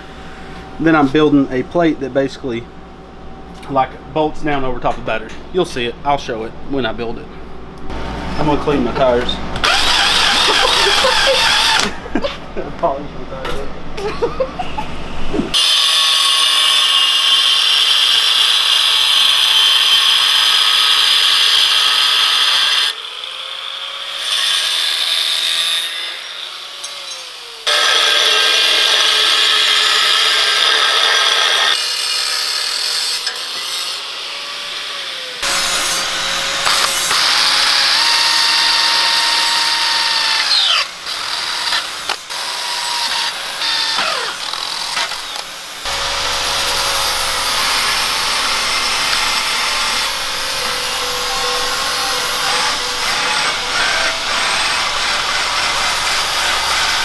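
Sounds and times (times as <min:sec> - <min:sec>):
cordless drill boring through steel: 0:09.6 - 0:11.9, 0:15.5 - 0:57.0
angle grinder cutting steel: 0:09.6 - 0:12.0, 0:15.5 - 0:57.0.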